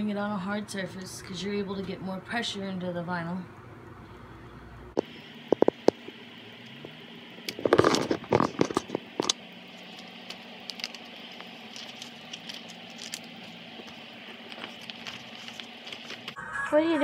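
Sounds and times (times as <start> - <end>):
sheet material crinkling: 9.7 - 16.4.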